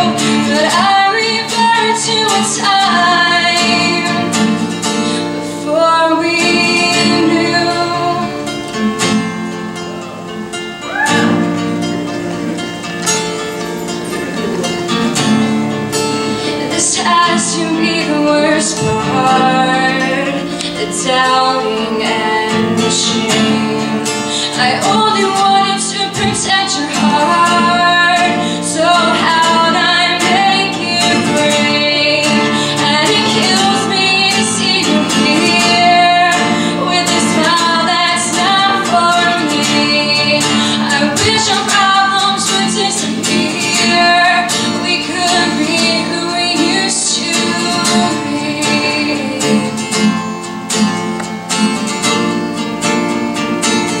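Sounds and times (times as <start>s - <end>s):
woman singing: 0.0s - 50.8s
strummed acoustic guitar: 0.0s - 54.0s.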